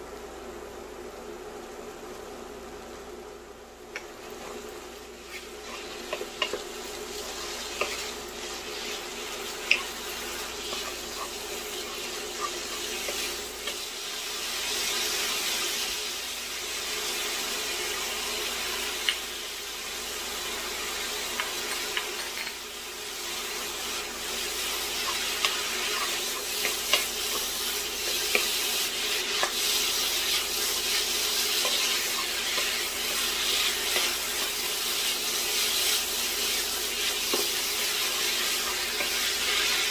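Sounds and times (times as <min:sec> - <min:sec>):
wooden spoon scraping a pan: 0:04.2 - 0:13.8
meat sizzling in a frying pan: 0:04.2 - 0:39.9.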